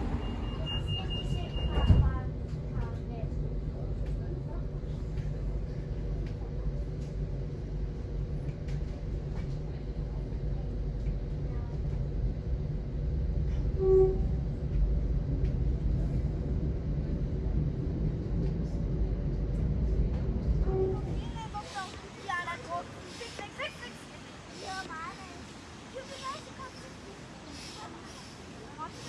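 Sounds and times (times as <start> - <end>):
brief tone: 0.0 - 2.1
train rumble inside carriage: 0.0 - 29.0.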